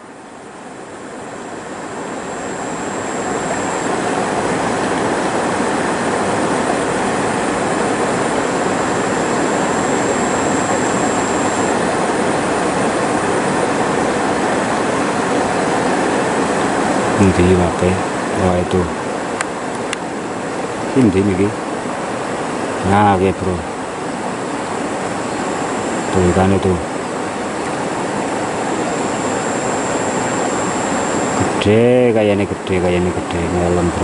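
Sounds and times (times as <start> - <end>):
river water rushing: 0.0 - 17.2, 21.6 - 22.9, 23.6 - 26.2, 26.8 - 31.5.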